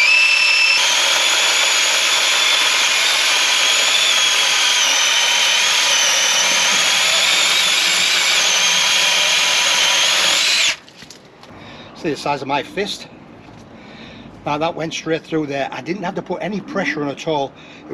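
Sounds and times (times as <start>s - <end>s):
electric chainsaw whining: 0.0s - 10.8s.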